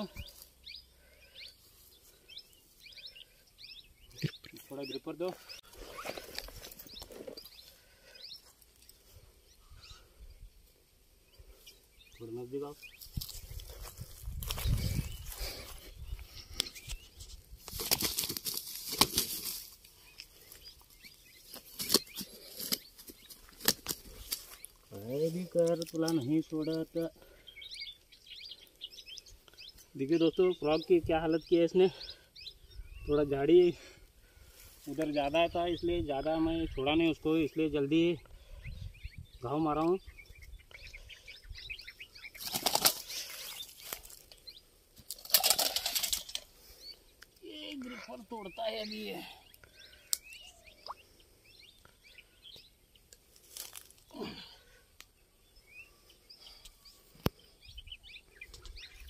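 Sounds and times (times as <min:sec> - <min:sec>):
grass rustling: 0:04.2 - 0:27.1, 0:42.2 - 0:48.9, 0:53.1 - 0:54.6
fish thrashing on grass: 0:42.4 - 0:43.2, 0:45.0 - 0:46.4.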